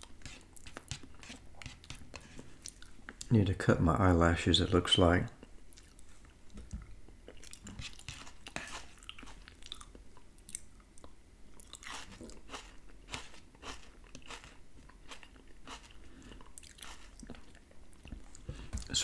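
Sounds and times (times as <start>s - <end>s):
fork scraping plate: 0.0s - 2.5s, 7.7s - 9.4s.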